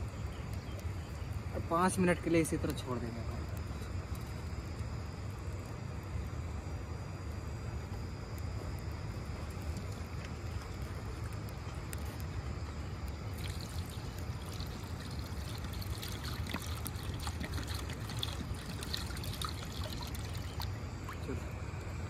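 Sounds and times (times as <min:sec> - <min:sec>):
water pouring into a pot: 0:13.3 - 0:21.3.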